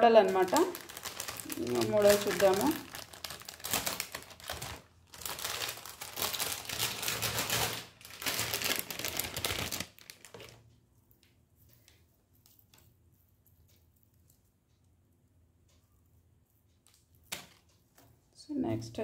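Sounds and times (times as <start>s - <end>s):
plastic wrapping crinkling: 0.0s - 10.7s.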